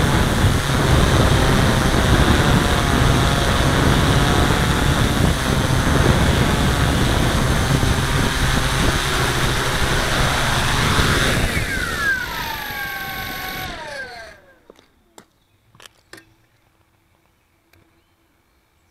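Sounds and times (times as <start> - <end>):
drone motors and propellers: 0.0 - 15.0.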